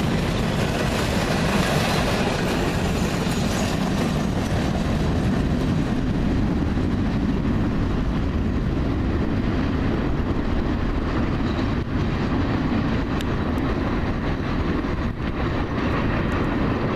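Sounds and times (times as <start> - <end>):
train cars rumbling on track: 0.0 - 16.9.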